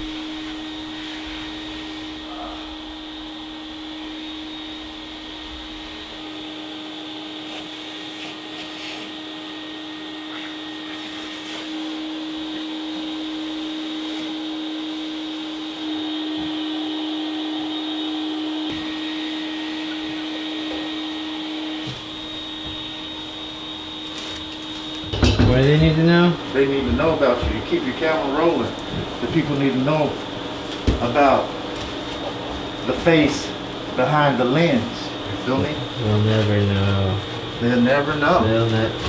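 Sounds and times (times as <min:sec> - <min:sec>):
vacuum cleaner running: 0:00.0 - 0:39.0.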